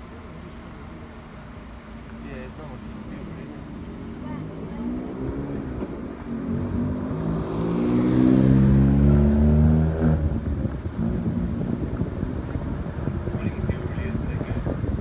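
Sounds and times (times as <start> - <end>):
car driving past: 2.5 - 12.0.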